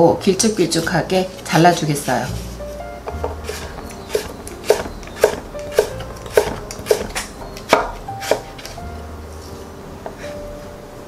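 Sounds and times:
knife knocking on wooden board: 0:03.1 - 0:08.4.

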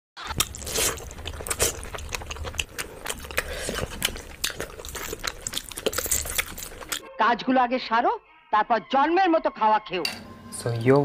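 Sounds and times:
wet chewing and biting: 0:00.2 - 0:07.1.

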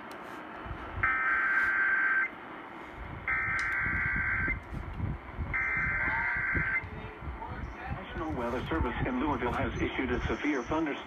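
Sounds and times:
harsh buzzing data bursts: 0:01.0 - 0:02.4, 0:05.6 - 0:06.9.

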